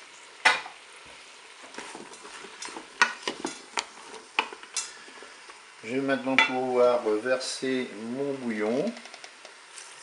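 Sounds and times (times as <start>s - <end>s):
faint frying sizzle: 0.0s - 10.0s
wooden spoon knocking and scraping bowl: 1.8s - 4.6s.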